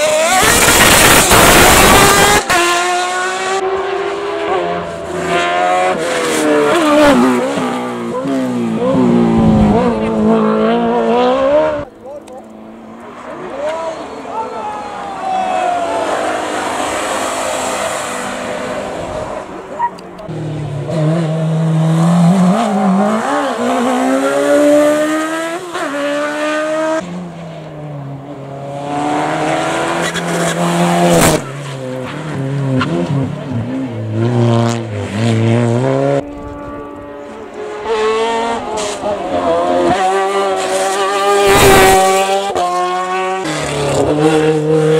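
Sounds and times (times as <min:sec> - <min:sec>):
race car engine accelerating: 0:28.4 - 0:44.9.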